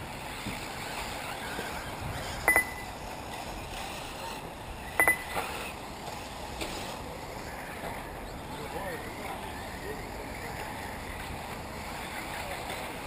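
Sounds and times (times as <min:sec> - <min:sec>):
ringing double clinks: 0:02.5 - 0:02.9, 0:05.0 - 0:05.4.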